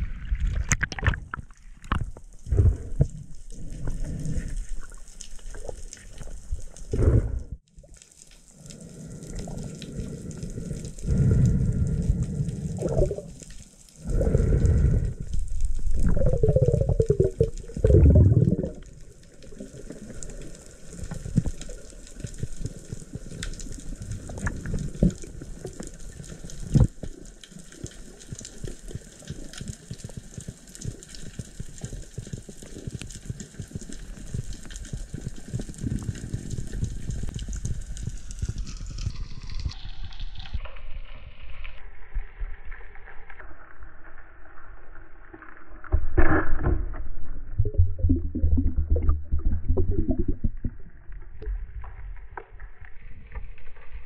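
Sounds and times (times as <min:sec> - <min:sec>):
faint underwater crackle of clicks: 0:00.7 - 0:07.1, 0:07.7 - 0:40.9
rushing gurgling water: 0:15.7 - 0:21.5.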